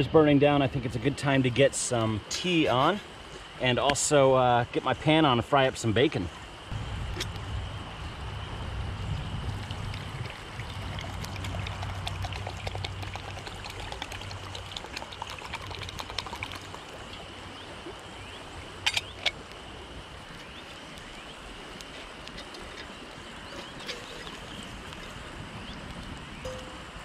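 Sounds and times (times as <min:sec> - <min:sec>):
water poured into metal cup: 0:09.6 - 0:17.2, 0:23.4 - 0:25.2
crackling wood fire: 0:18.7 - 0:26.4.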